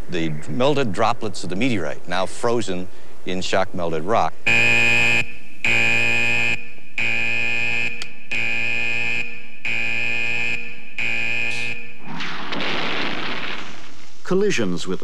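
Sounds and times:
warning buzzer pulsing: 4.5 - 12.0
gas gun firing blast: 12.0 - 14.2.

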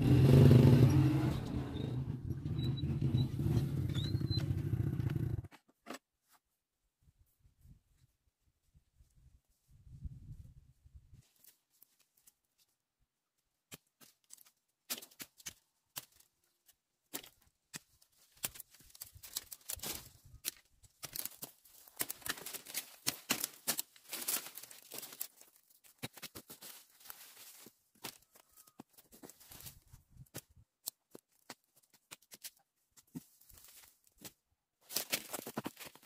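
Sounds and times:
twigs and leaves crackling: 13.7 - 36.0.

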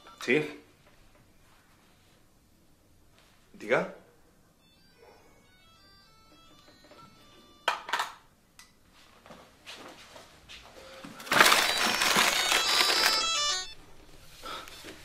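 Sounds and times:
harsh noise with ringing tones: 11.2 - 13.9.

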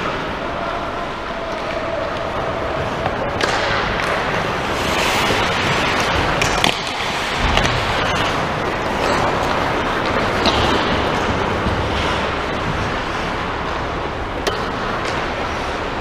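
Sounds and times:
steady rushing noise: 0.0 - 16.0
skate blades scraping ice: 2.8 - 14.2
hockey stick hitting puck: 3.0 - 13.1.

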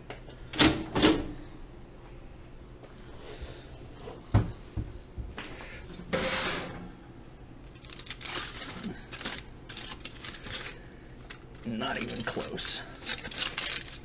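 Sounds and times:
oven rack scraping: 6.0 - 6.9
aluminium foil crinkling: 7.6 - 14.0.

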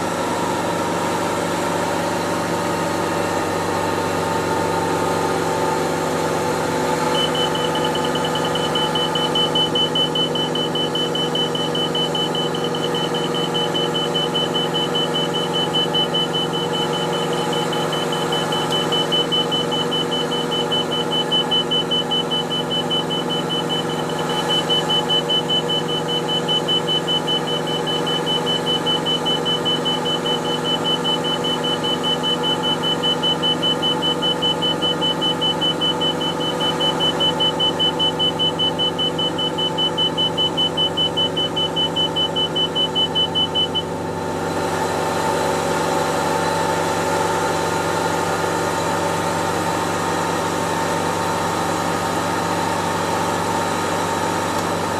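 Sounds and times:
helicopter engine and rotor drone: 6.5 - 43.9
pulsed high warning beeps: 6.6 - 44.0.

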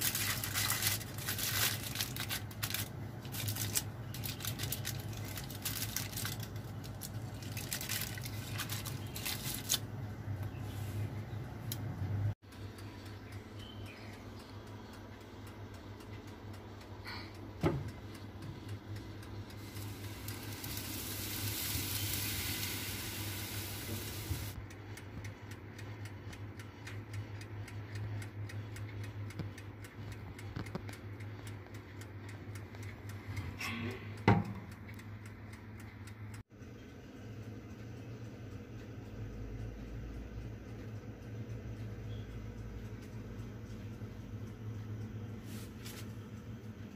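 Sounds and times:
steady low hum: 0.0 - 46.9
hiss: 19.6 - 24.6.

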